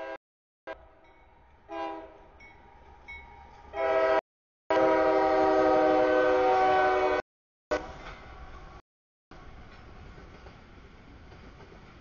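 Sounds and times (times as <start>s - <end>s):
locomotive air horn blasts: 0.0s - 0.8s, 1.7s - 2.3s, 3.7s - 8.0s.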